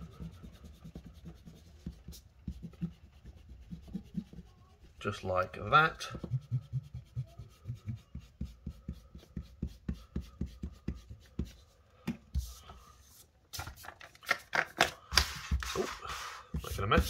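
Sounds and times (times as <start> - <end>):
paper rustling on table: 12.4 - 17.0
eraser scrubbing paper: 15.2 - 17.0.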